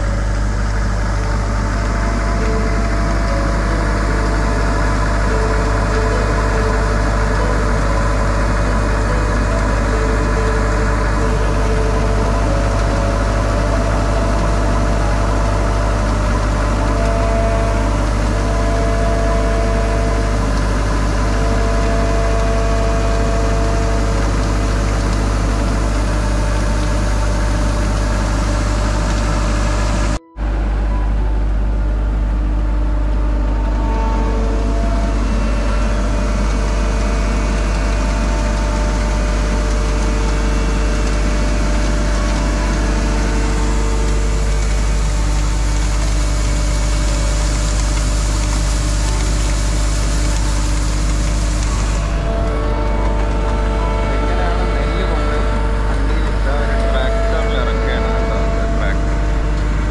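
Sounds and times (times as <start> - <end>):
auger whining: 0.0 - 59.9
combine harvester engine hum: 0.0 - 59.9.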